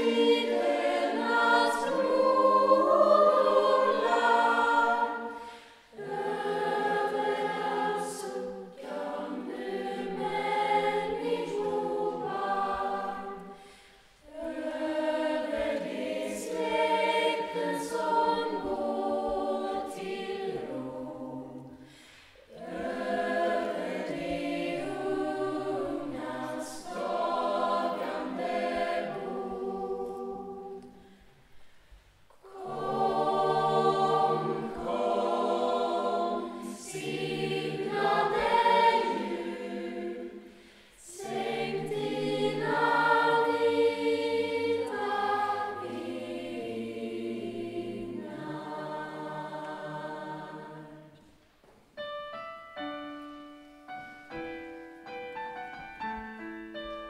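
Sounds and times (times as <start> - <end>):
female choir singing: 0.0 - 31.2, 32.3 - 51.4
slow piano notes: 52.0 - 57.0.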